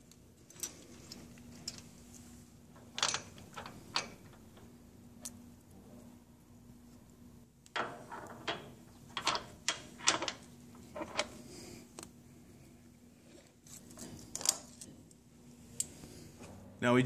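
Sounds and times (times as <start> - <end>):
metallic clicks and knocks: 7.7 - 11.4.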